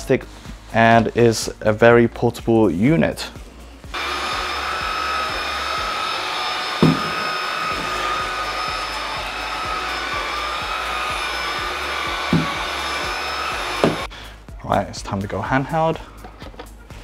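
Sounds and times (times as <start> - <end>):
vacuum cleaner motor whine: 3.9 - 14.1
dull knocks: 6.8 - 7.2.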